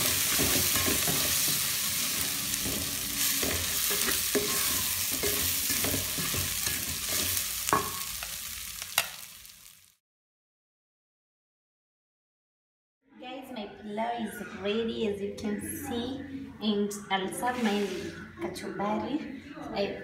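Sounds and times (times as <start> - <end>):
rice sizzling in a pot: 0.0 - 10.0.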